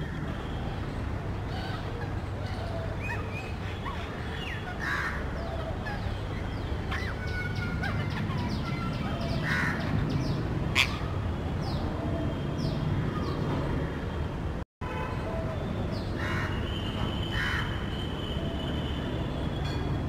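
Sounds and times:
harsh bird calls: 0:01.5 - 0:13.6.

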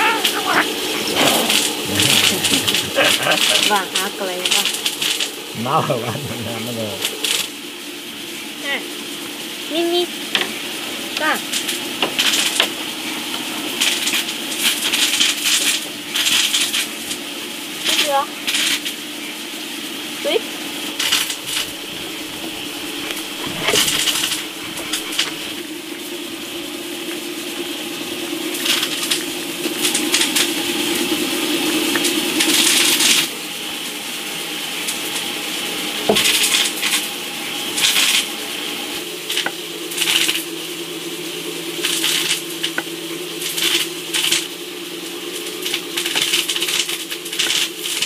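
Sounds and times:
cats chewing and licking: 0:00.0 - 0:03.8, 0:21.0 - 0:25.6.

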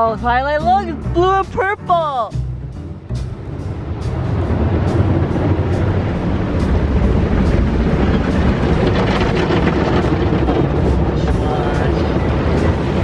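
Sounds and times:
deep rumble: 0:00.0 - 0:13.0
water spray rushing against car: 0:03.6 - 0:13.0.

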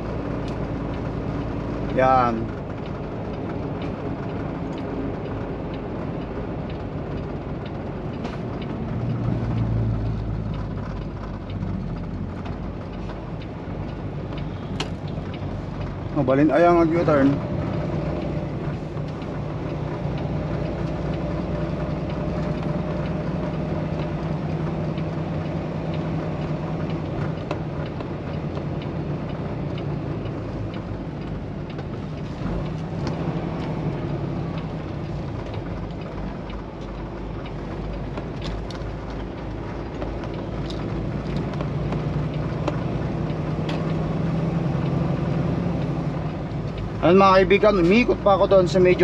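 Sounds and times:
road and tyre noise: 0:00.0 - 0:49.0
truck diesel engine running: 0:00.0 - 0:49.0.

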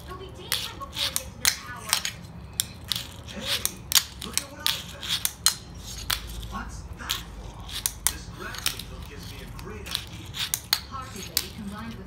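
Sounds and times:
fingerboard clicks and clacks: 0:00.0 - 0:12.0.

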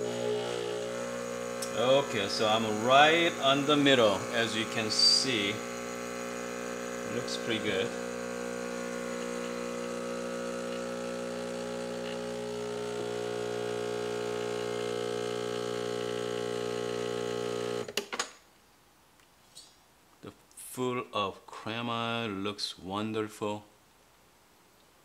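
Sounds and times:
espresso machine pump buzzing: 0:00.0 - 0:17.9.

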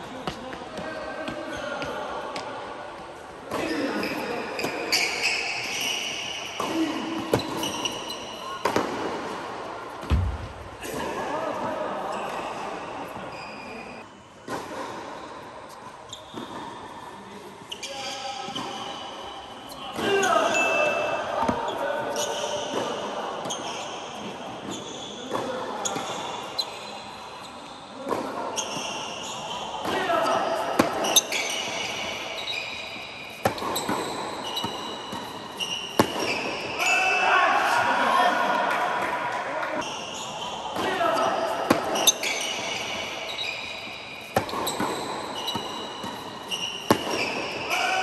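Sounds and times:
racket hitting tennis ball: 0:08.6 - 0:11.2, 0:33.4 - 0:36.5, 0:44.3 - 0:47.6
tennis ball bouncing: 0:10.0 - 0:10.7, 0:33.4 - 0:36.4, 0:44.3 - 0:47.4.

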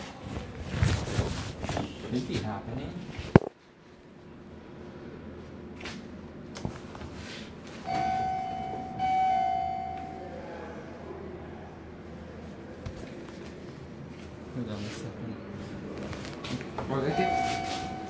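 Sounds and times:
elevator electronic tones: 0:07.9 - 0:10.6, 0:17.0 - 0:18.0.

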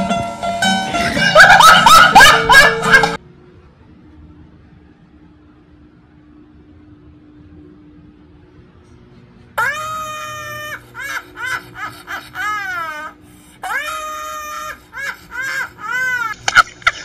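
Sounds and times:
woman laughing shrilly: 0:01.0 - 0:03.2, 0:09.6 - 0:17.0.

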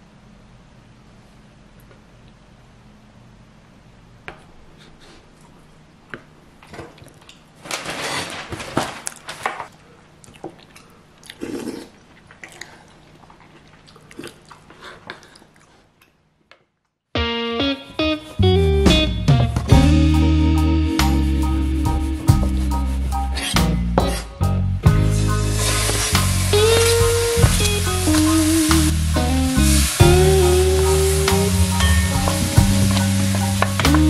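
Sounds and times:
person chewing: 0:09.7 - 0:16.3.

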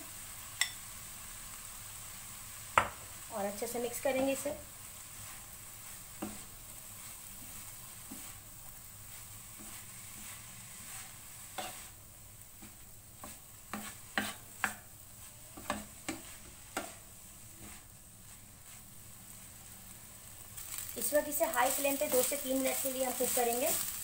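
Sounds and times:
low sizzle in frying pan: 0:00.0 - 0:24.0
utensil knocking and scraping pan: 0:12.6 - 0:14.8, 0:15.6 - 0:17.0.

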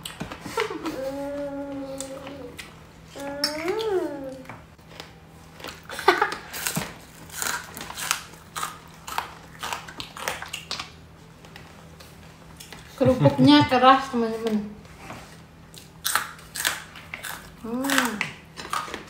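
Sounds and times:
cracker crunching: 0:03.4 - 0:12.9, 0:15.7 - 0:19.0.

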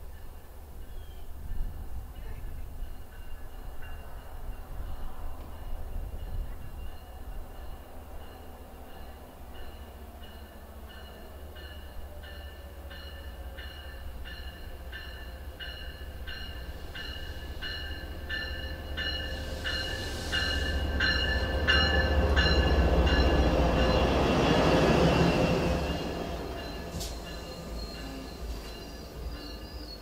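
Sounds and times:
train engine and wheels rumbling: 0:00.0 - 0:30.0
locomotive bell ringing: 0:06.3 - 0:30.0.

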